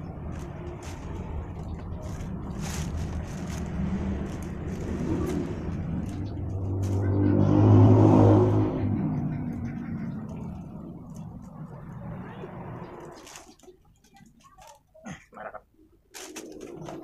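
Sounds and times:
vehicle passing by engine hum: 0.0s - 13.8s.

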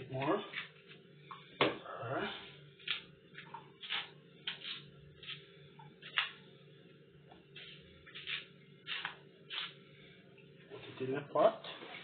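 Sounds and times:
knife scraping banana peel: 2.8s - 6.4s, 7.6s - 9.8s.

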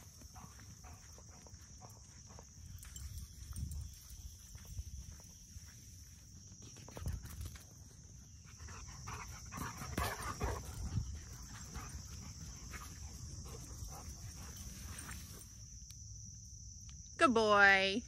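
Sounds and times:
crickets chirping: 0.0s - 18.0s
dogs making rough sounds: 8.5s - 15.1s.

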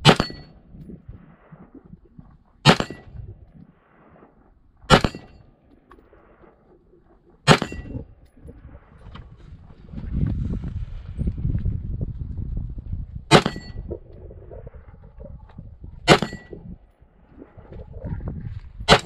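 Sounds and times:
rifle shots: 2.6s - 3.1s, 4.9s - 5.5s, 7.4s - 8.0s.

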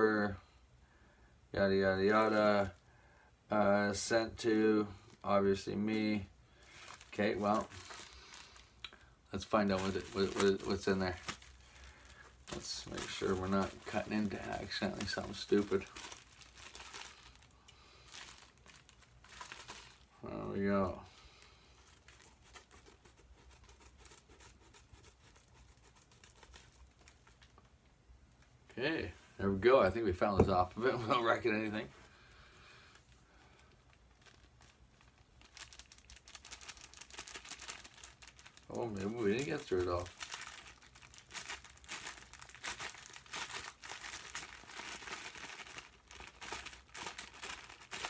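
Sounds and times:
envelope crinkling and rustling: 5.9s - 8.8s, 9.4s - 20.2s, 21.4s - 27.8s, 32.9s - 48.0s.

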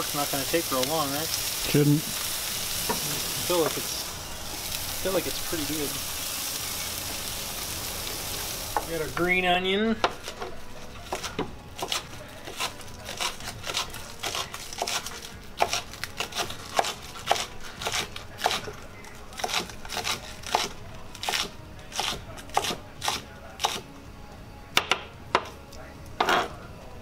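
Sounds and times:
knife chopping on cutting board: 16.4s - 18.6s.

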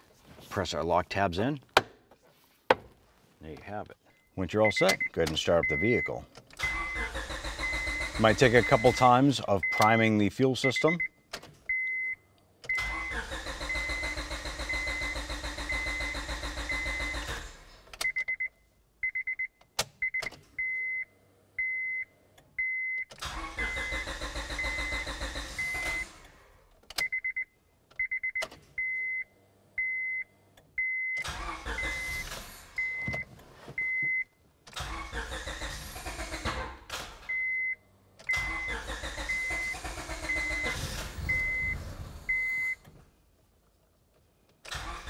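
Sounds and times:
dashboard warning chime beeping: 4.1s - 17.3s, 27.0s - 34.4s, 37.3s - 42.8s
car engine cranking and starting: 6.4s - 9.2s, 12.6s - 18.1s, 23.1s - 27.0s, 30.5s - 33.3s, 34.6s - 43.1s, 44.5s - 45.0s.

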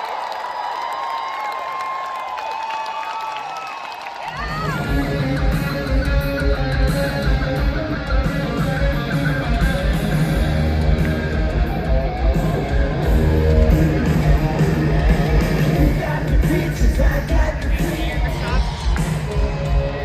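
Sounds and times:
electric guitar: 4.3s - 20.0s
live rock band playing: 4.5s - 20.0s.

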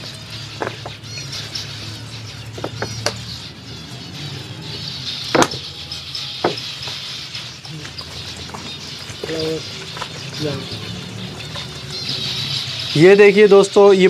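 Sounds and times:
finches chirping: 0.0s - 14.0s.

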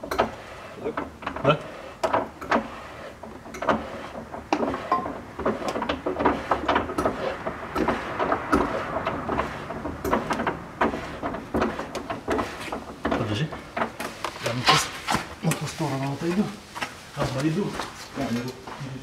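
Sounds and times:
hand-cranked winch clicking: 0.0s - 14.2s.

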